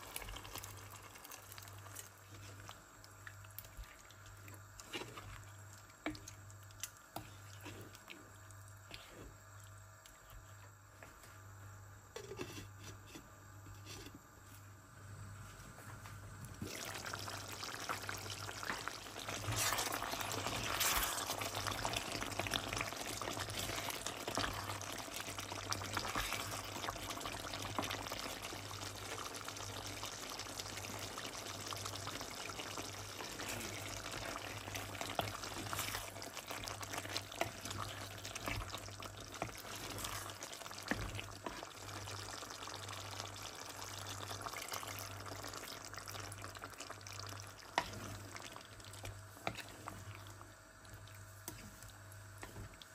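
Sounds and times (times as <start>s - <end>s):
curry bubbling and sizzling: 0.0s - 10.6s, 16.5s - 52.9s.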